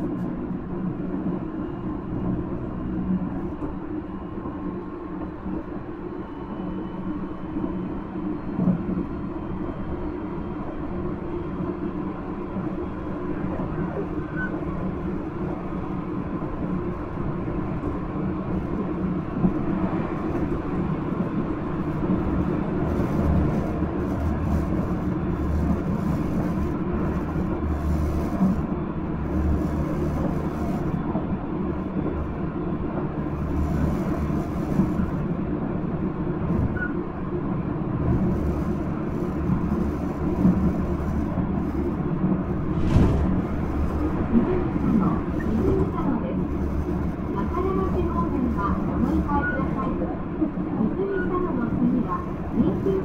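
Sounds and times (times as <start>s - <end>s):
train wheels rumbling on rails: 0.0s - 53.0s
deeper rumble: 42.5s - 46.3s.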